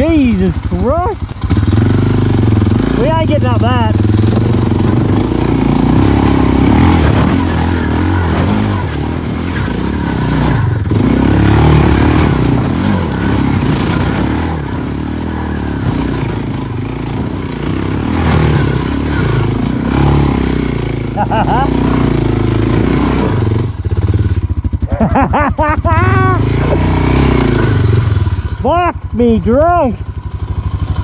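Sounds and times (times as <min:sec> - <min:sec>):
motorcycle engine revving: 0:00.0 - 0:31.0.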